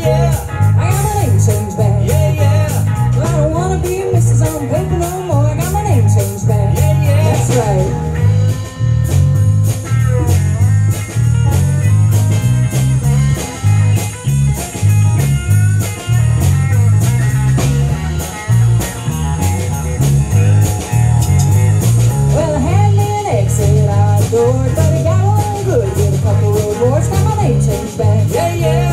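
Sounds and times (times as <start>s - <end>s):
person singing: 0.0s - 8.3s, 22.3s - 28.9s
driving bass line: 0.0s - 28.9s
electric guitar lead: 0.0s - 28.9s
steady drums: 0.0s - 28.9s.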